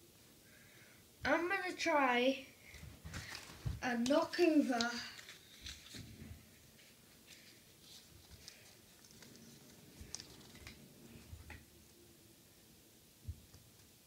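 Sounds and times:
soft handling clicks and rustles: 4.8 - 11.6.

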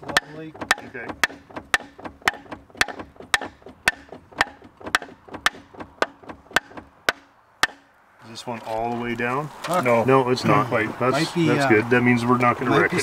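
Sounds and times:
hammer striking wood: 0.0 - 7.9.

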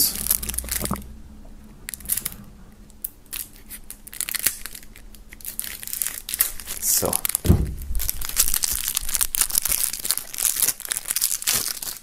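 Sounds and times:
plastic wrap crinkling: 0.0 - 1.1, 1.9 - 2.4, 3.0 - 12.0
knife scraping plastic wrap: 8.1 - 12.0.

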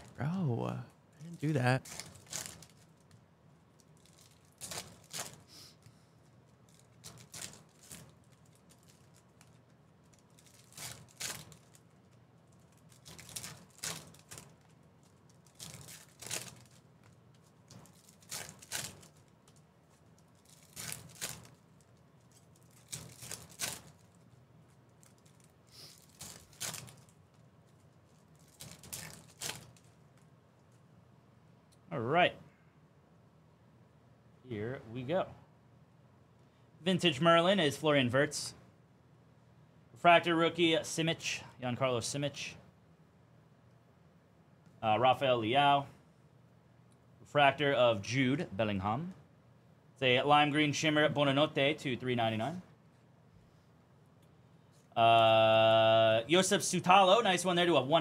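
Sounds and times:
card wrappers crinkling and tearing: 1.3 - 5.5, 6.5 - 30.2
cards being handled: 6.4 - 30.8.

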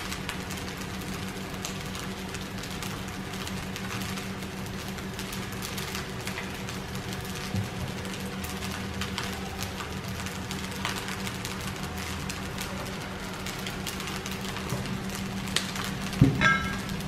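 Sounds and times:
rice sizzling in a wok: 0.0 - 17.0
spatula striking wok: 16.2 - 17.0.

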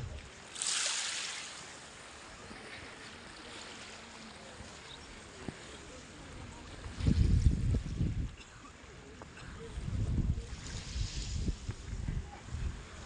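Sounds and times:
surf washing on sand: 0.0 - 13.0
calm sea hiss: 0.1 - 7.5, 8.7 - 13.0.

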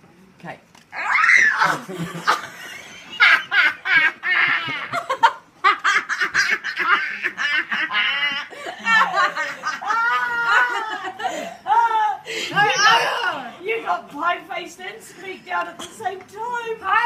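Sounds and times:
girl and woman laughing: 1.6 - 13.4.

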